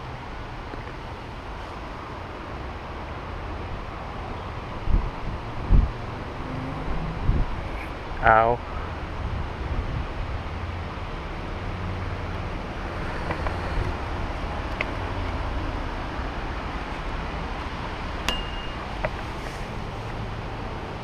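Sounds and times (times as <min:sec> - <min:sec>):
wind rumble on microphone: 0:03.5 - 0:18.3
sharp click with short ring: 0:18.3 - 0:18.9.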